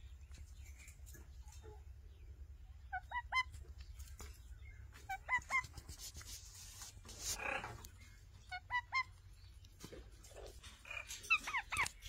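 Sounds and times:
parakeets calling: 0:02.8 - 0:03.6, 0:04.6 - 0:05.8, 0:07.3 - 0:09.5, 0:10.4 - 0:12.0.

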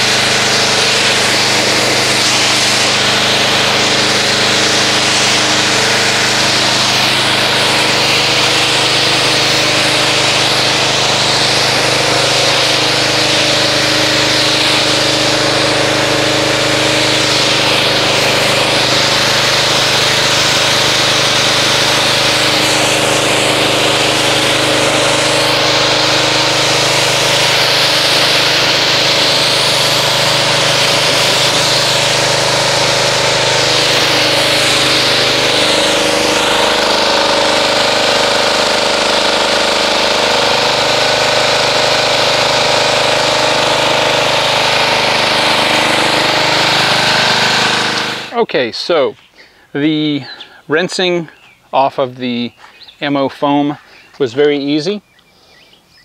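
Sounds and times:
water jet hissing: 0:00.0 - 0:48.6
pressure washer motor humming: 0:00.0 - 0:56.0.

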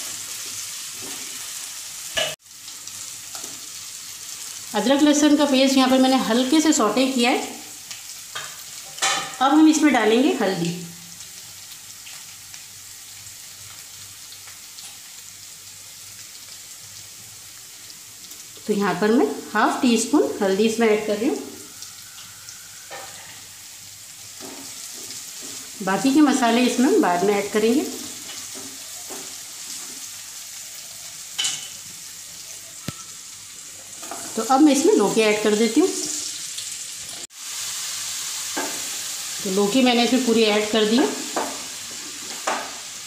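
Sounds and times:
food sizzling in hot oil: 0:00.0 - 0:43.0
spatula stirring in pan: 0:24.2 - 0:25.8, 0:27.9 - 0:32.9.

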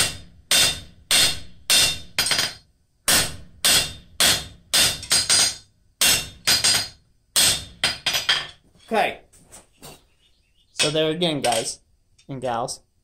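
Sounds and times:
hammer striking metal on anvil: 0:00.0 - 0:08.4.

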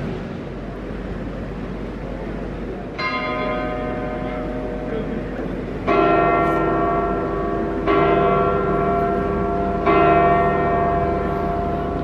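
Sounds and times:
large church bell tolling: 0:02.8 - 0:12.0.

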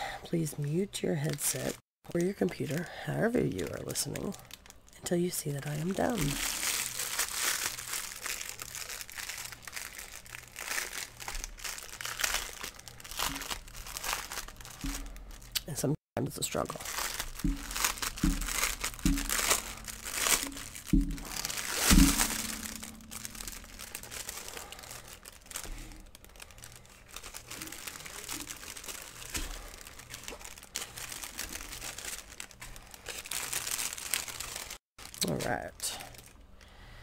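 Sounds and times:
plastic packaging crinkling: 0:00.7 - 0:36.5
short thumps: 0:17.3 - 0:24.3.

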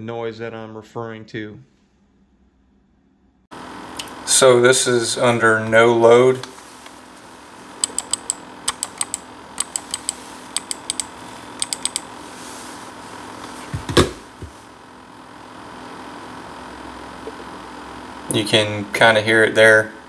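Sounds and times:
laptop cooling fan: 0:03.6 - 0:20.0
computer mouse clicking: 0:07.8 - 0:12.1.

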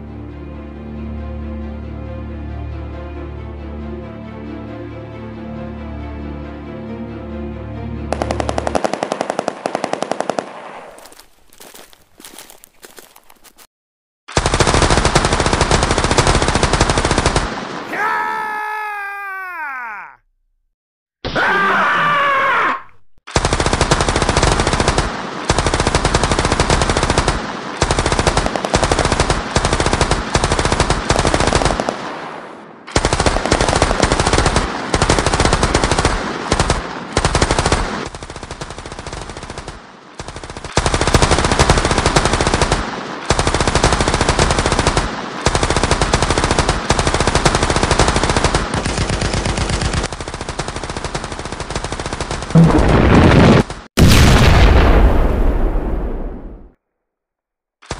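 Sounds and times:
machine-gun fire: 0:08.1 - 0:11.2, 0:14.3 - 0:17.9, 0:23.3 - 0:55.6.

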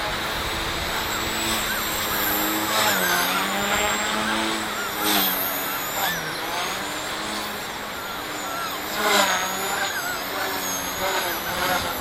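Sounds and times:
toy helicopter motor whine: 0:00.0 - 0:12.0.

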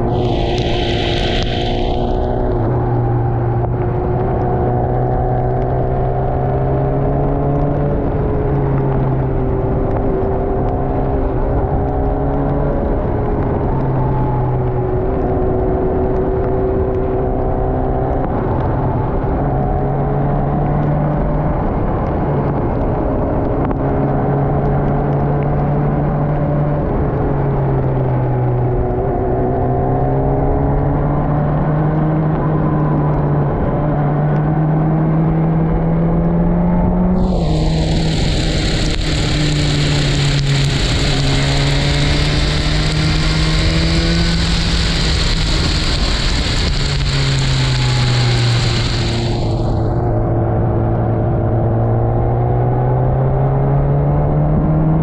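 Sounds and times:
steady high hiss: 0:00.0 - 0:02.7, 0:37.2 - 0:50.0
wind rush: 0:00.0 - 0:15.0, 0:37.1 - 0:50.6
motorcycle engine running: 0:37.2 - 0:50.1.

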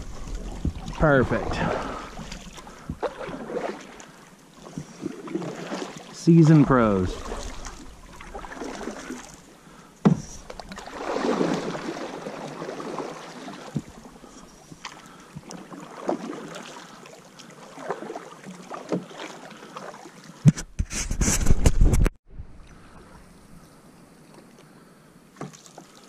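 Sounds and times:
canoe paddles pulling through water: 0:00.0 - 0:21.5, 0:22.5 - 0:26.0
camera handling rubbing and knocking: 0:20.4 - 0:22.1.

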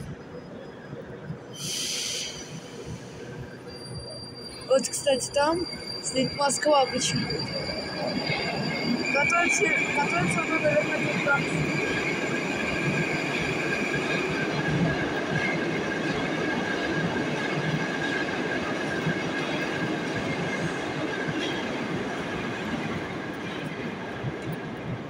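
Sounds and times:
train rail running noise: 0:00.0 - 0:25.0
high squealing tones: 0:02.3 - 0:13.6.

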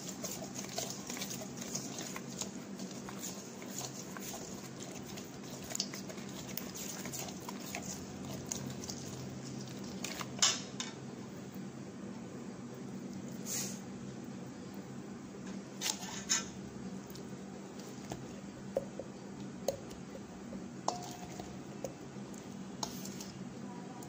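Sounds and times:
faint steady hum: 0:00.0 - 0:24.0
spoon scraping steel bowl: 0:15.8 - 0:16.5, 0:20.9 - 0:21.5.

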